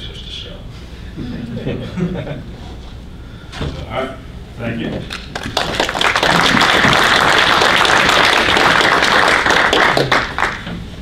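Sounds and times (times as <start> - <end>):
audience applauding: 5.1 - 10.7.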